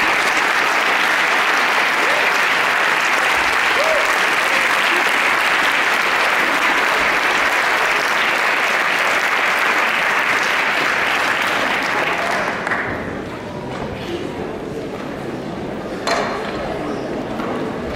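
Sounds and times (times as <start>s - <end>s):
audience applauding: 0.0s - 13.2s.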